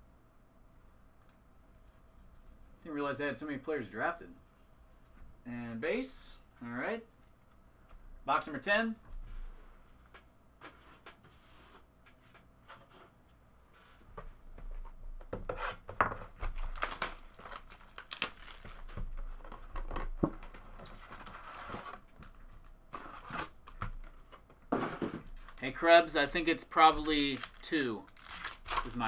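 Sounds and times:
plastic wrap tearing and crinkling: 16.4s - 19.6s, 25.3s - 29.0s
foil packs rustling: 16.4s - 19.7s, 20.9s - 29.0s.

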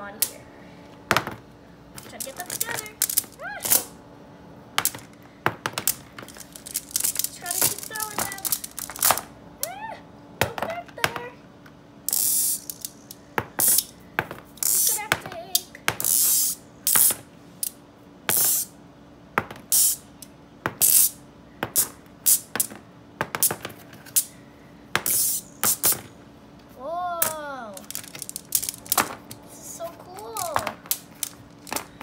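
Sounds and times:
magnetic metal balls clicking: 2.0s - 3.9s, 5.8s - 9.2s, 12.1s - 13.9s, 27.2s - 29.4s.

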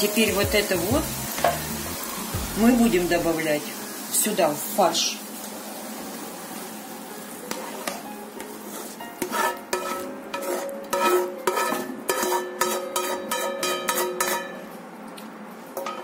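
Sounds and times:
spatula scraping a frying pan: 7.5s - 8.0s, 8.6s - 14.7s.

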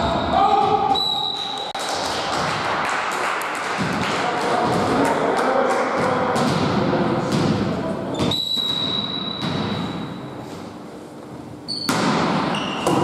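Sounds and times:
players' voices echoing: 0.0s - 10.2s.

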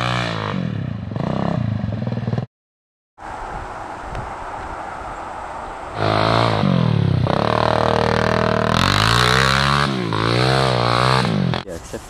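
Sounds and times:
atv engine revving: 0.0s - 2.5s, 6.0s - 11.7s
steady rushing noise: 3.2s - 8.7s.

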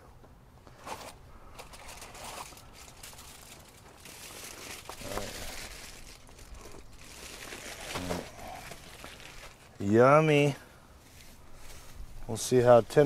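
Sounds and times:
aluminium foil crinkling: 0.8s - 10.0s.

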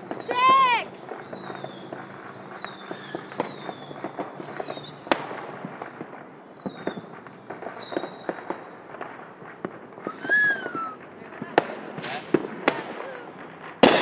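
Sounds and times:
high falling firework whistles: 0.0s - 9.0s, 9.9s - 11.1s
firecrackers popping and crackling: 0.0s - 14.0s
sharp firework bang: 11.6s - 14.0s.

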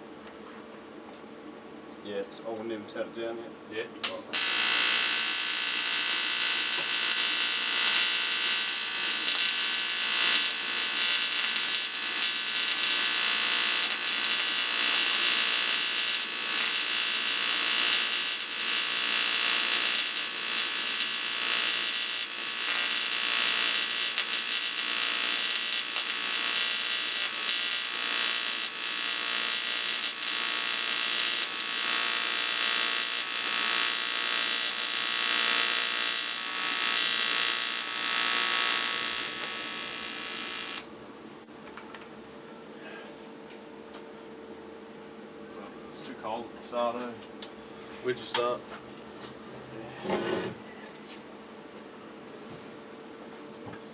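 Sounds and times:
welding arc buzzing: 4.3s - 40.9s.

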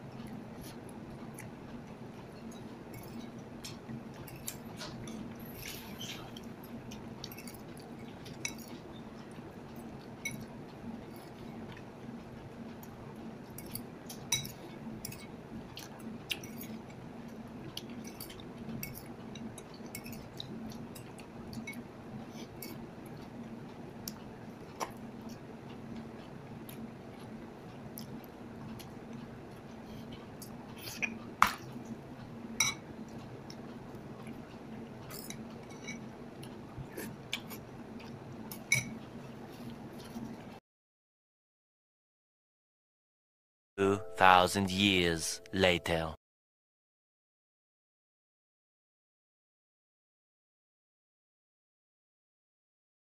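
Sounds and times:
chewing: 12.8s - 17.0s, 26.2s - 32.0s, 33.1s - 40.5s.

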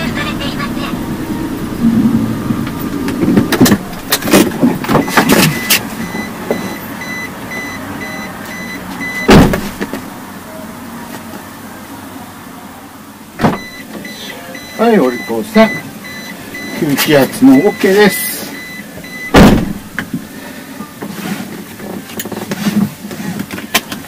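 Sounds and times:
short electronic beep: 5.0s - 9.3s.

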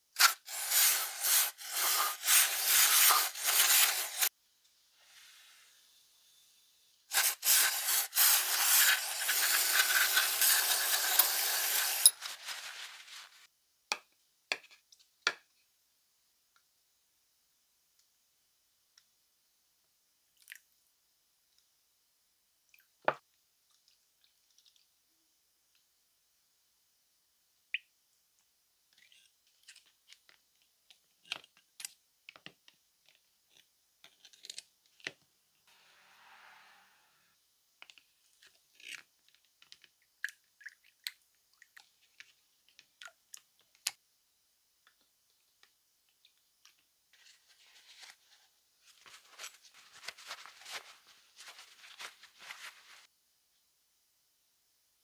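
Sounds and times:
parts dipped in liquid: 0.2s - 4.3s, 7.1s - 13.5s
short hiss: 35.7s - 37.4s.

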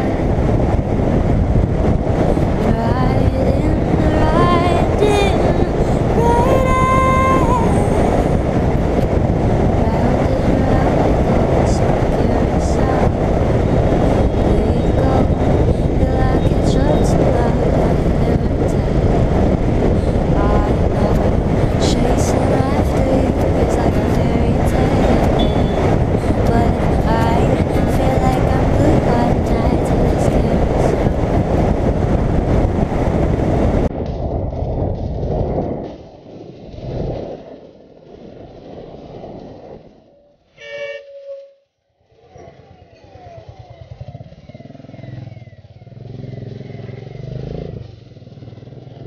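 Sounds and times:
wind rushing over microphone: 0.0s - 41.3s
vehicle horn blaring: 25.3s - 25.9s, 40.6s - 41.6s
motorcycle engine running: 42.1s - 49.0s.

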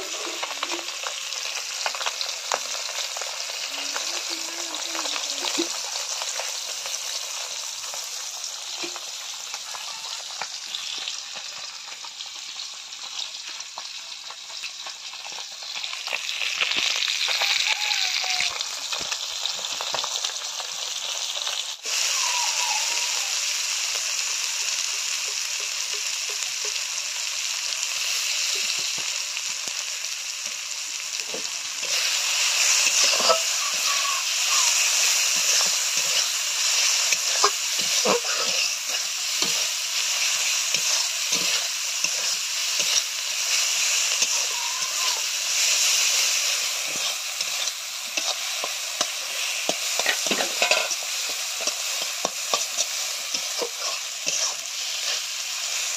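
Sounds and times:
fish sizzling in hot oil: 0.0s - 55.9s
onions frying: 0.0s - 55.9s
spatula stirring: 45.6s - 55.2s.

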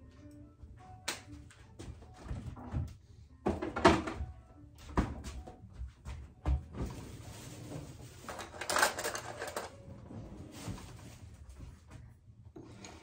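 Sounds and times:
kitchen items clattering and rustling: 2.2s - 4.3s, 6.0s - 13.0s.

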